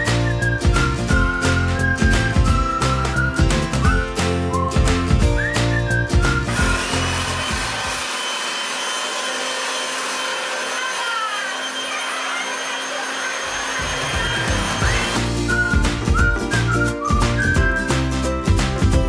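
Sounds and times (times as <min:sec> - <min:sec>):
electric blower rushing air: 0:06.2 - 0:15.7
party music beat: 0:14.0 - 0:19.0.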